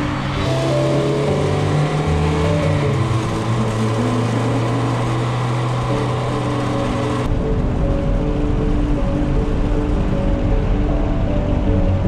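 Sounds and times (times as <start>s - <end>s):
car engine droning past: 0.0s - 7.3s.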